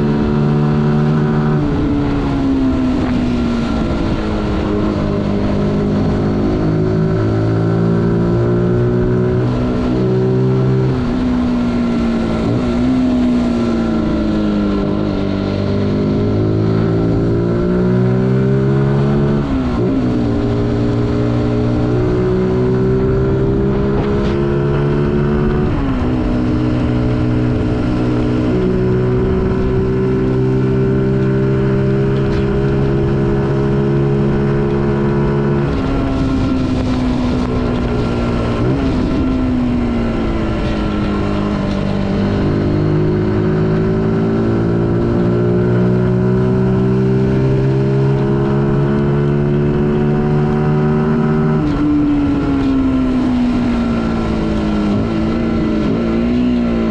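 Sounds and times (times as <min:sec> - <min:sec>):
wind noise on microphone: 0:00.0 - 0:56.9
motorcycle engine running: 0:18.9 - 0:56.9.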